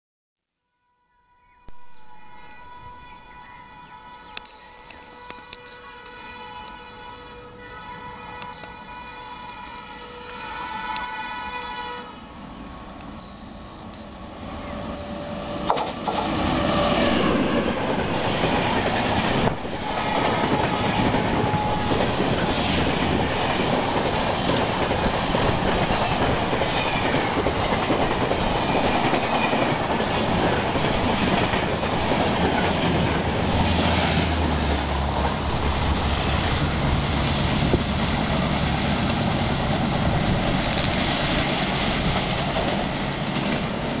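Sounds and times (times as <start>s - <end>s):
locomotive horn blasts: 1.0s - 12.3s, 19.8s - 22.1s
train wheels clattering on rails: 15.6s - 44.0s.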